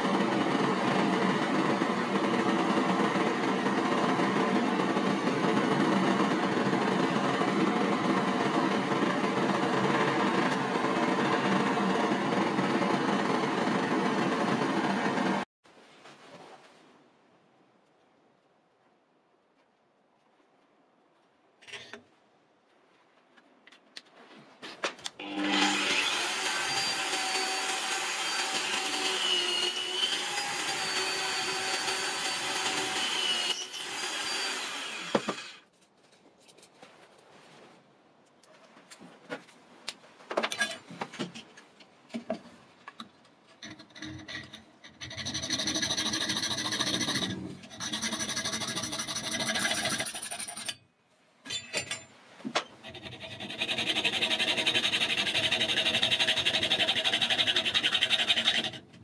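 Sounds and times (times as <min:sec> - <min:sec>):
drill boring through wood: 0:25.2 - 0:35.6, 0:53.0 - 0:58.8
hacksaw cutting metal rod: 0:25.2 - 0:35.6, 0:43.7 - 0:50.8, 0:52.8 - 0:58.9.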